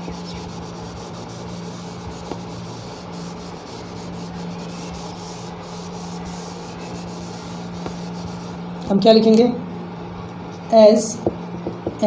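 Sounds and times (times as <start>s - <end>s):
cloth wiping a whiteboard: 0.0s - 8.6s
steady low hum: 0.0s - 12.0s.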